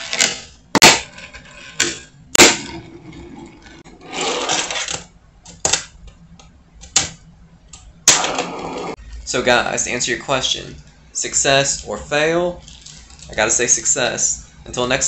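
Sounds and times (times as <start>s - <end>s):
small wheels rolling on ramp: 2.7s - 5.0s.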